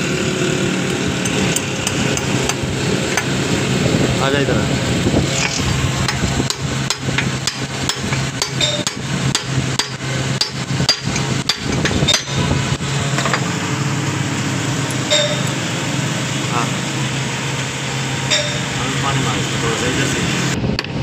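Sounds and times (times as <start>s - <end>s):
steady low hum: 0.0s - 21.0s
hammer striking metal: 5.4s - 12.5s, 15.0s - 15.7s, 18.2s - 18.9s.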